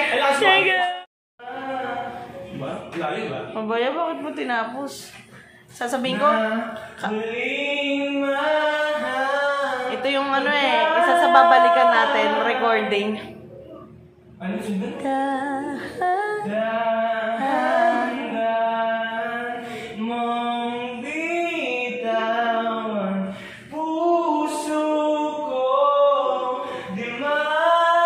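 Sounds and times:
person singing slow melody: 14.8s - 28.0s.

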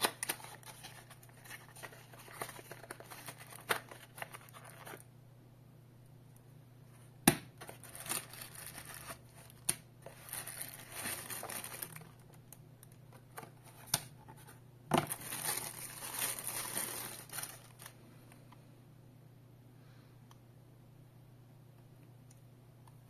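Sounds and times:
plastic bag crinkling and tearing: 0.0s - 5.1s, 7.6s - 12.6s, 15.0s - 18.0s.

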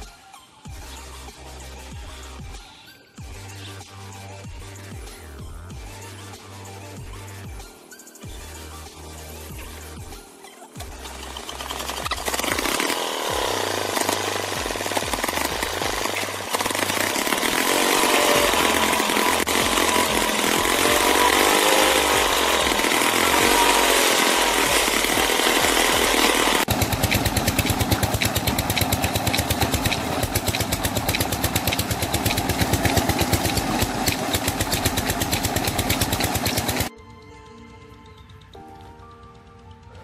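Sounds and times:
diesel pump engine thudding: 24.6s - 36.9s.

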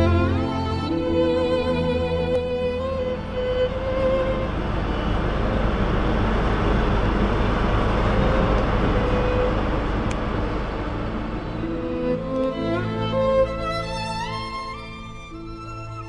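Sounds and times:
train running: 0.0s - 16.0s.

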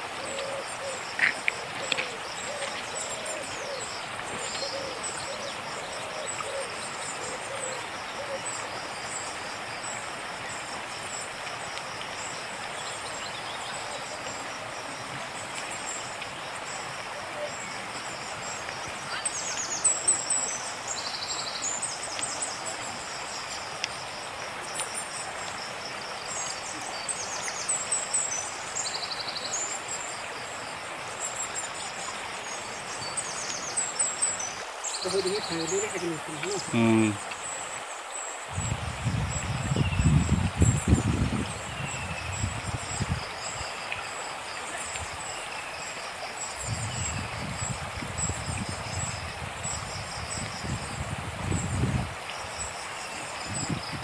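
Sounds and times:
flooded river rushing: 0.0s - 54.0s
birds chirping: 32.4s - 38.1s.

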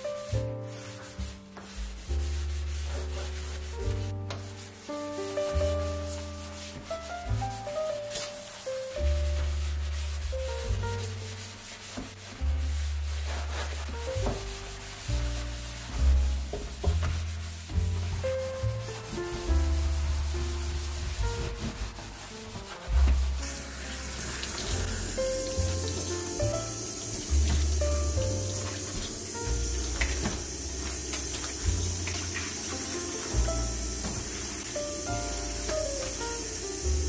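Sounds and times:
sponge scrubbing metal sink: 0.0s - 37.0s
background music with bass: 8.9s - 37.0s
tap water running into sink: 23.4s - 37.0s.

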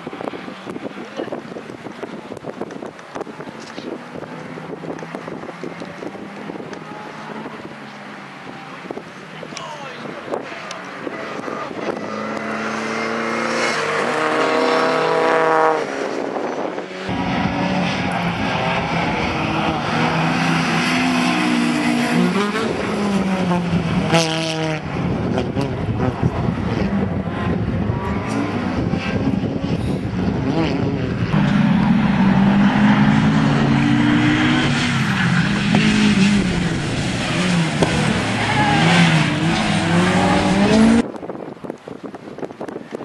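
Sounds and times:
wind on microphone: 0.0s - 20.8s, 21.4s - 43.0s
rally car engine revving hard: 10.9s - 41.1s.

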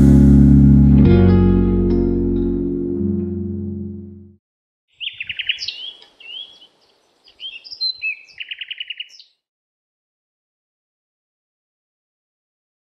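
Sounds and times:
music: 0.0s - 4.4s
small bird chattering chirps: 5.0s - 9.3s.

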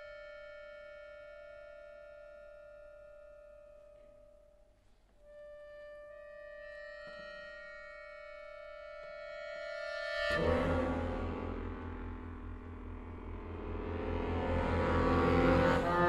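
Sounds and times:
accordion sustained reedy note: 5.2s - 16.0s.

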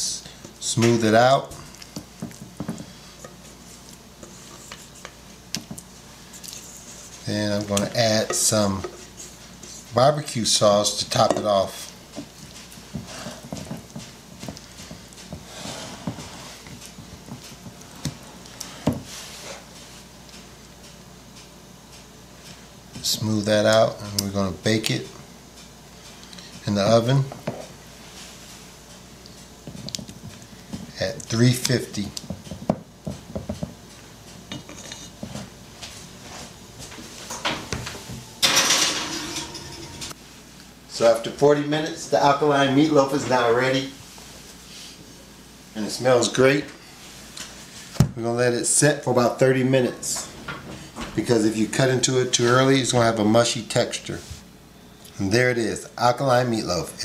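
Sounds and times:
spatula patting meatloaf mixture: 0.2s - 37.1s
pan scraping onto oven rack: 38.4s - 40.2s.

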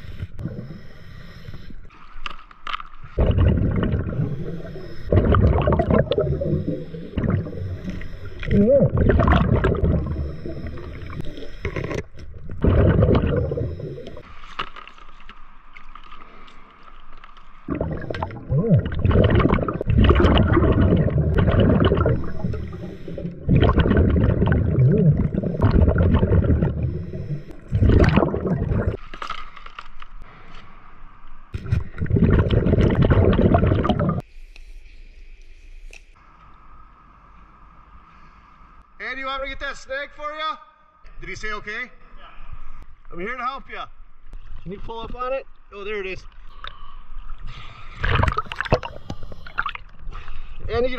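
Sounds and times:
regulator hiss: 0.0s - 1.8s, 6.2s - 8.5s, 22.2s - 23.4s
exhaled bubbles underwater: 3.2s - 14.2s, 17.6s - 29.0s, 31.6s - 34.2s, 48.0s - 50.0s.

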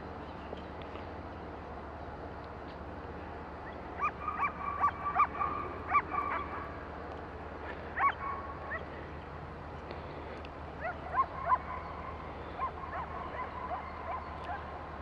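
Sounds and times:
dog yelping: 4.0s - 6.6s, 8.0s - 8.2s.

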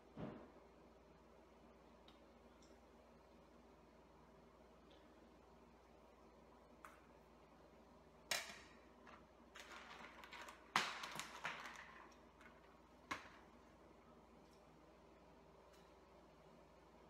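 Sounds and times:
clicks of small hard objects: 8.3s - 13.5s.

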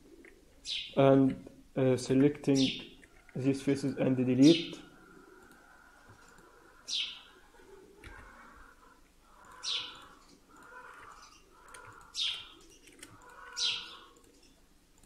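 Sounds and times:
bird chirping: 0.6s - 1.0s, 6.6s - 7.7s, 9.3s - 14.6s.

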